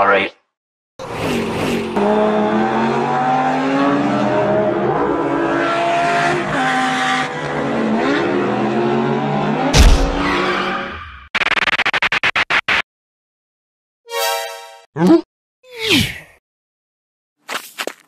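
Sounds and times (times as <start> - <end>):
car engine revving: 1.0 - 10.8
loud sudden thud: 9.8 - 10.4.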